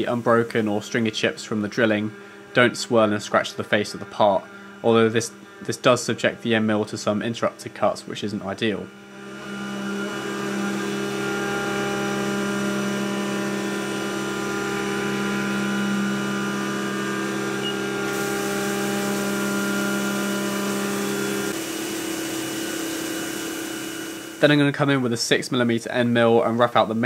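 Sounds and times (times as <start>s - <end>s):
coolant spray hiss: 0.0s - 1.4s, 18.0s - 24.7s
milling spindle whine: 0.0s - 25.0s.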